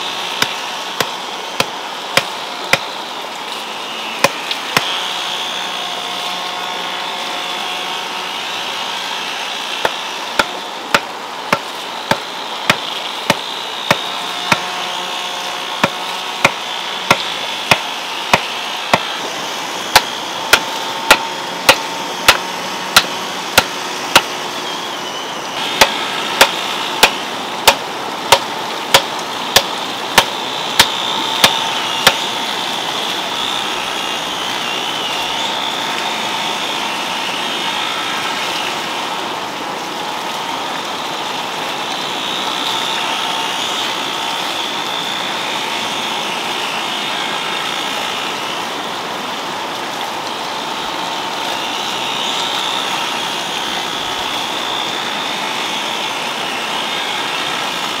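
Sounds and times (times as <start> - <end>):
wooden mallet striking stake: 0.4 - 2.9, 4.2 - 5.0, 9.8 - 14.8, 15.8 - 19.1, 19.9 - 24.3, 25.8 - 32.3.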